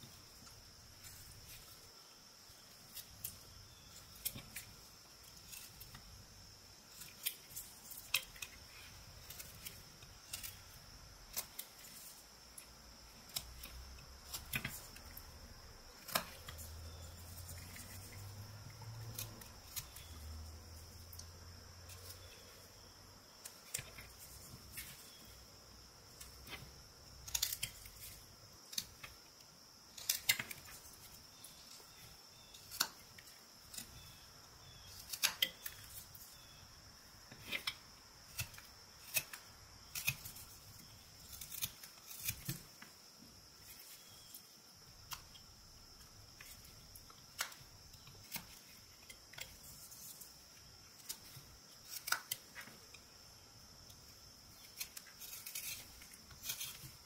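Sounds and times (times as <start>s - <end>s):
faint steady high hiss: 0.0s - 57.0s
knife whittling wood: 6.8s - 29.2s, 37.3s - 44.4s, 54.5s - 57.0s.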